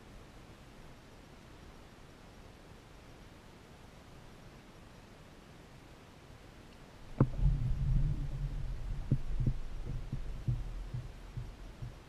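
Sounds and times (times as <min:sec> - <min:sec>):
thuds on plastic kayak hull: 0:07.2 - 0:12.0.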